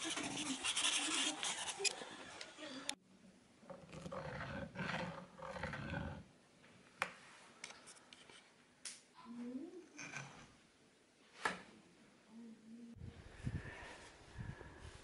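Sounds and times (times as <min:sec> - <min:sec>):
pencil scraping on rough wood: 0:00.0 - 0:02.0.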